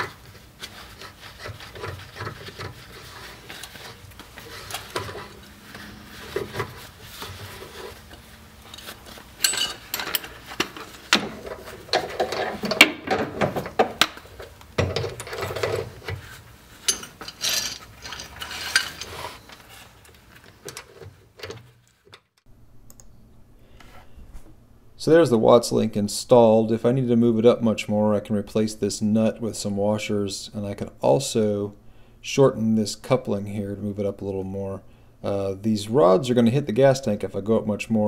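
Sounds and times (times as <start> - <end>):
metal scraping: 0.0 - 20.0
clinks and rattles of nuts and washers: 8.6 - 16.2, 16.8 - 19.6.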